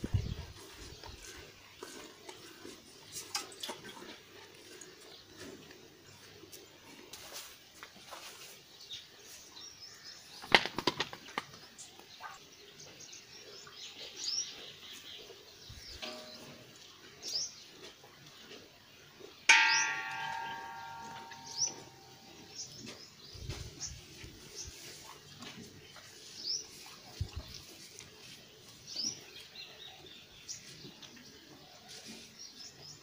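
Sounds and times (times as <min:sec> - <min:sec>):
small birds chirping: 0:00.0 - 0:07.5, 0:08.1 - 0:33.0
metallic clang: 0:16.0 - 0:16.7, 0:19.5 - 0:22.5.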